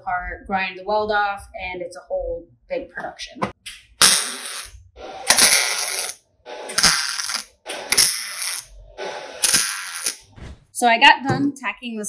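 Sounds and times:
welding arc crackling: 0:04.0 - 0:10.4.

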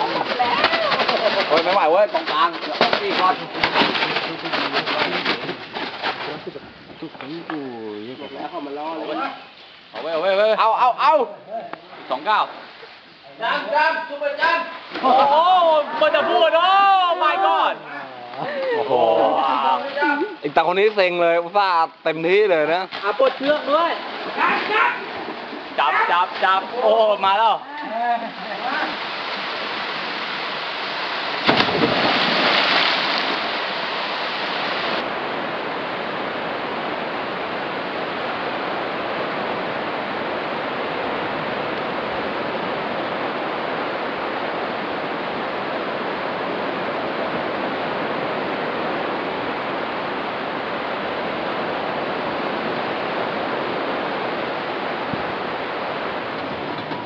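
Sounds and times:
rushing water: 0:00.0 - 0:57.0
loud splash into pool: 0:31.3 - 0:35.0.

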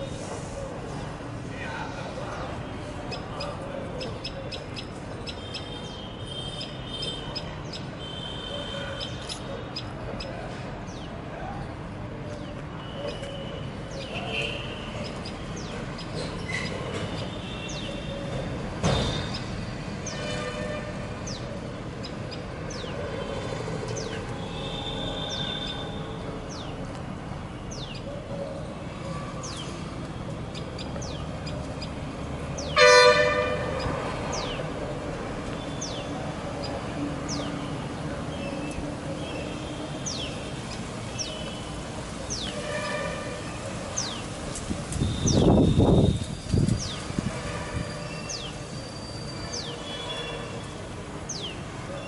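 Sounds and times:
birds chirping: 0:01.0 - 0:52.0
loud horn: 0:32.8 - 0:33.8.

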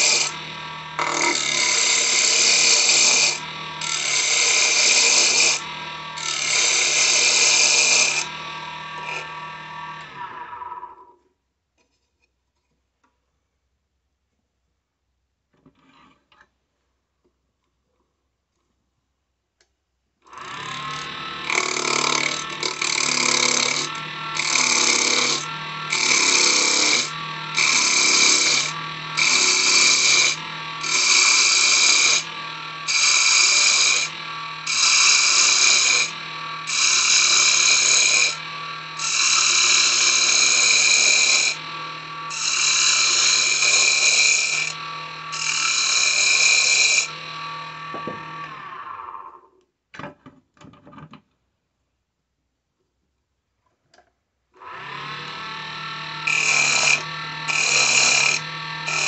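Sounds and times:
lathe spinning down: 0:00.0 - 0:11.0, 0:21.0 - 0:49.3, 0:54.7 - 0:59.0
wood lathe humming: 0:00.0 - 0:11.0, 0:20.3 - 0:49.3, 0:54.6 - 0:59.0.

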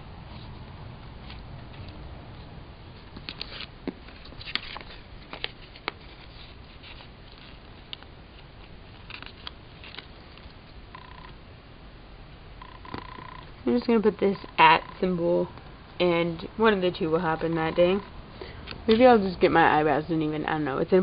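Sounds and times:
steady low hum: 0:00.0 - 0:21.0
paper rustling: 0:03.2 - 0:10.6.

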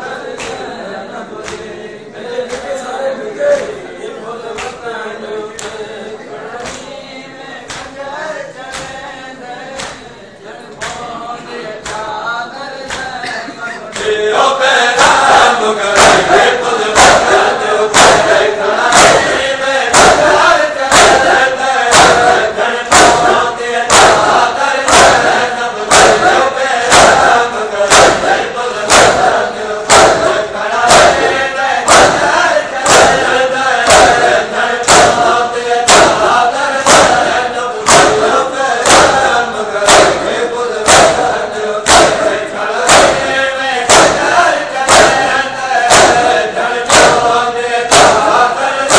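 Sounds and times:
men chanting in unison: 0:00.0 - 0:48.9
hands beating chests: 0:15.0 - 0:48.9.

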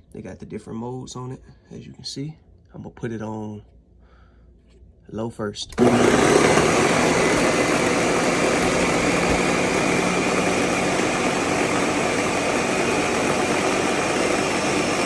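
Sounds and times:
blender motor whirring: 0:05.7 - 0:15.0.

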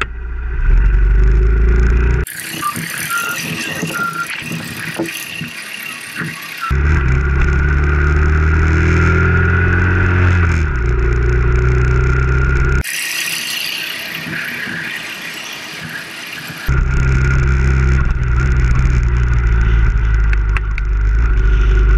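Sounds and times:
motorcycle engine running: 0:00.0 - 0:02.3, 0:06.7 - 0:12.8, 0:16.7 - 0:21.9.

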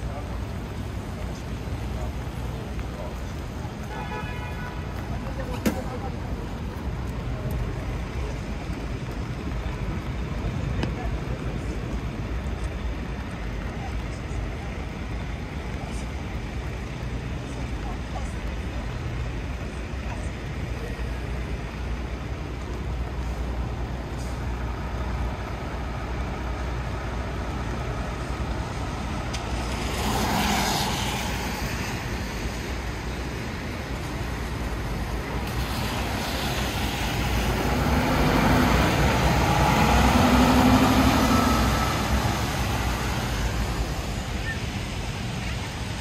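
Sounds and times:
city street traffic passing: 0:00.0 - 0:46.0
heavy vehicle engine hum: 0:00.0 - 0:46.0.

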